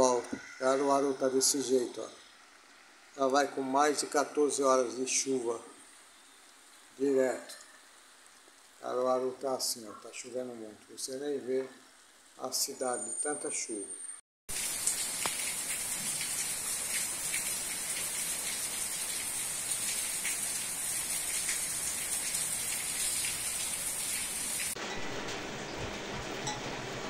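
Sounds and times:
raindrops tapping close by: 14.5 - 24.8
heavy rain pouring: 14.5 - 27.0.

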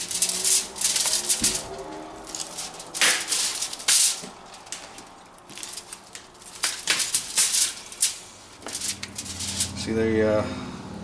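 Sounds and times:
foil crinkling: 0.0 - 9.8.

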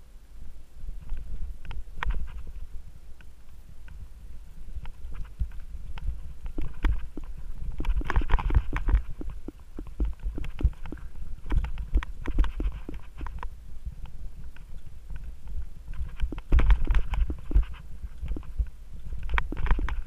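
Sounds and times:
mountain bike clattering: 4.7 - 20.0.

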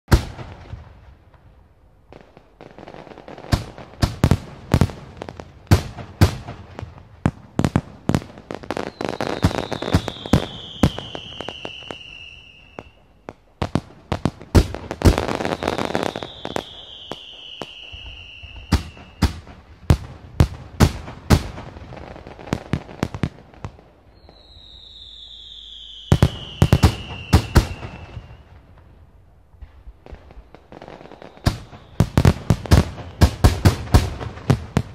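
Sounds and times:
fireworks bangs and crackles: 0.1 - 34.9
fireworks falling whistles: 7.5 - 20.0, 20.9 - 28.8, 29.6 - 34.9.

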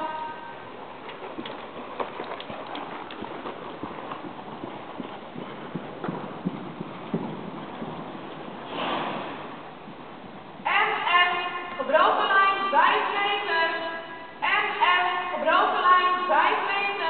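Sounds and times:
horse hoofbeats on sand: 0.0 - 11.4.

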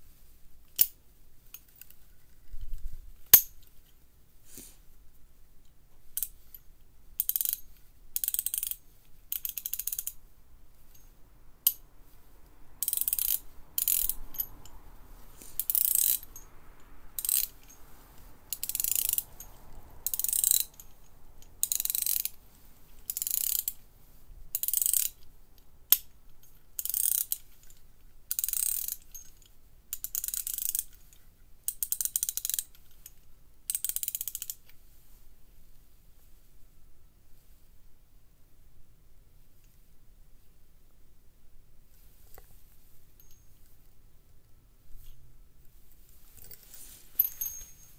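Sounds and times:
ratchet clicking: 6.1 - 6.6, 7.2 - 10.2, 12.8 - 14.8, 15.5 - 22.4, 23.0 - 23.8, 24.5 - 25.3, 25.9 - 31.1, 31.7 - 33.0, 33.7 - 34.7.

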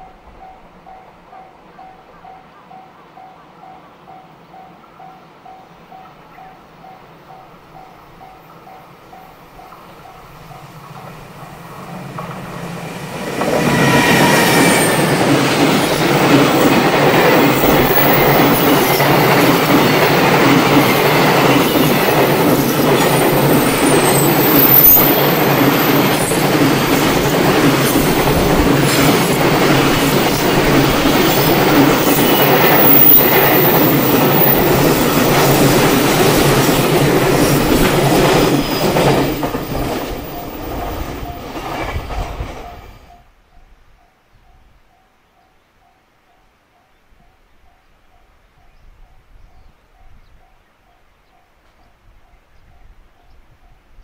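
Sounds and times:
train wheels rumbling on rail: 7.5 - 43.3
faint high wheel squeal: 23.9 - 25.3.

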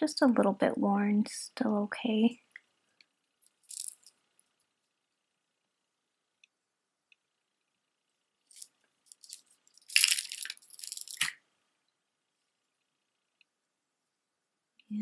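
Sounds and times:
stone beads clattering: 3.5 - 4.2, 8.5 - 11.4.

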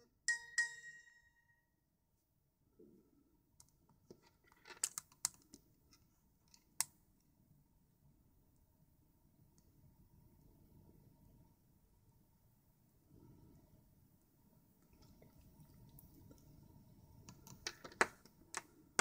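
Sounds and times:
phone text alert chime: 0.3 - 1.4.

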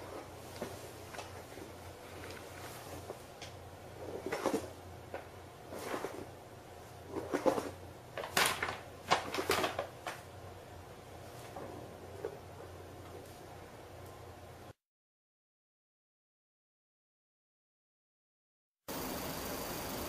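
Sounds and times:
paper bag crinkling: 7.2 - 10.2.

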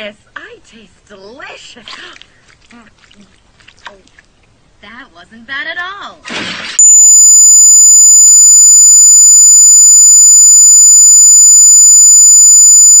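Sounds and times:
high-pitched electronic tone: 6.8 - 13.0.

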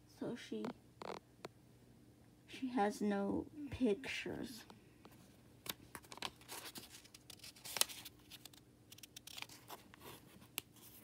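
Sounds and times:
paper rustling: 5.6 - 11.0.

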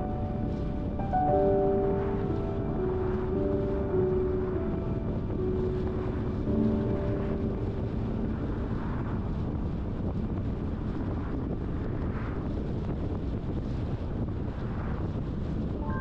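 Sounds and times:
car road and engine rumble: 0.0 - 16.0
wind buffeting microphone: 0.0 - 16.0.

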